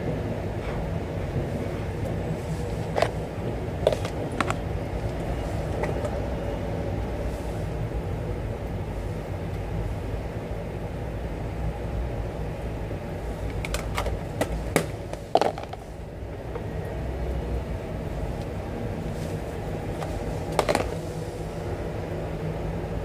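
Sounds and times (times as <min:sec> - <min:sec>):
plastic container clicks and knocks: 0:13.5 - 0:15.8, 0:20.5 - 0:21.0.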